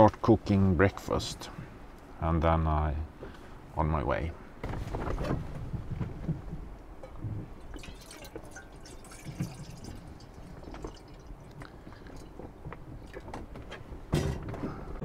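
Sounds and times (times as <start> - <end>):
water pouring into metal pot: 7.6 - 12.4.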